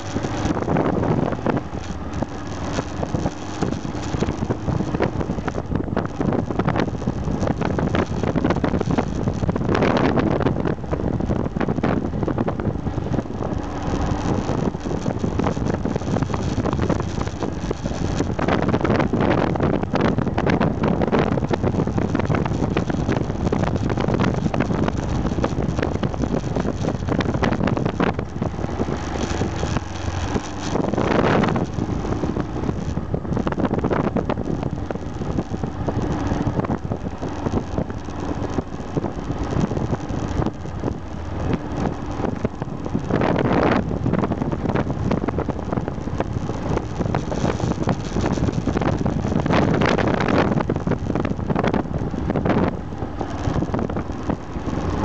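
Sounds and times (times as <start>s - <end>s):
motorcycle engine running: 0.0s - 55.0s
wind buffeting on microphone: 0.0s - 55.0s.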